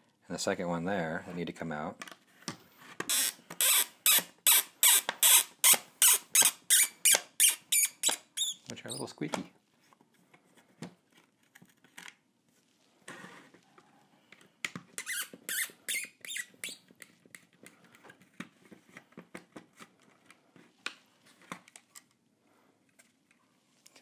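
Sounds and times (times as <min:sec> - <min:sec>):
bolts squeaking: 0:03.1 - 0:09.2, 0:15.0 - 0:16.8.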